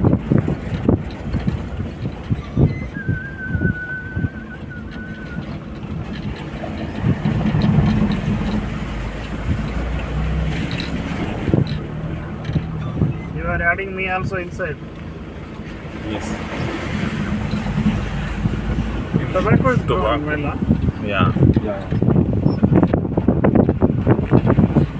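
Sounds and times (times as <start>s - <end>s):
car engine humming: 0.0s - 24.9s
thin high whistle: 2.6s - 5.5s.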